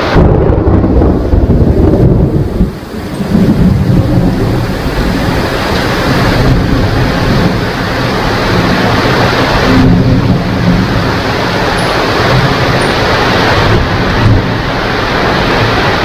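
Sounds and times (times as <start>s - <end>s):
rolling thunder: 0.0s - 16.0s
steady rain: 0.0s - 16.0s.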